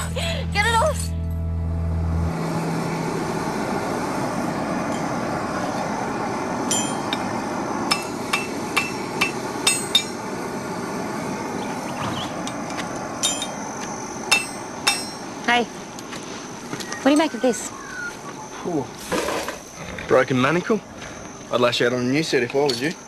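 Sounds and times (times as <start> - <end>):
steady rushing noise: 2.0 - 16.7
hammer striking metal on anvil: 6.7 - 7.3, 7.9 - 10.2, 13.2 - 13.6, 14.3 - 15.3.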